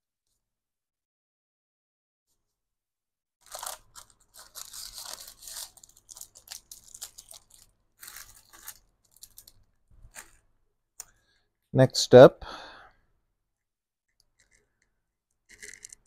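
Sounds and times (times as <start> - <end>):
plastic packaging crinkling: 3.4 - 10.5, 15.5 - 16.0.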